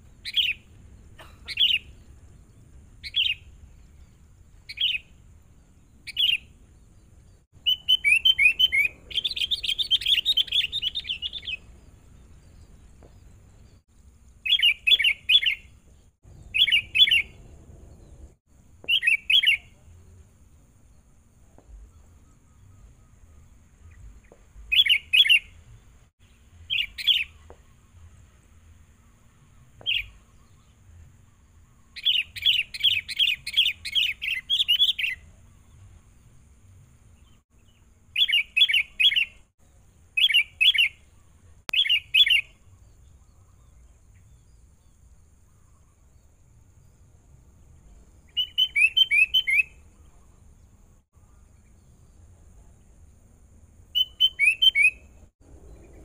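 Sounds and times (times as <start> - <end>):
bulbul chirping: 7.6 - 11.7, 14.4 - 17.5, 18.8 - 19.8.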